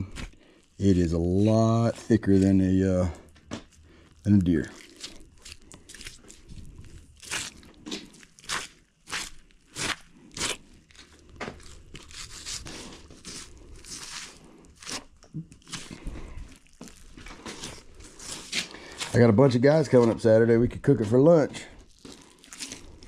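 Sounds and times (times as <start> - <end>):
knife cutting through hide: 7.2 - 16.4, 17.2 - 19.3.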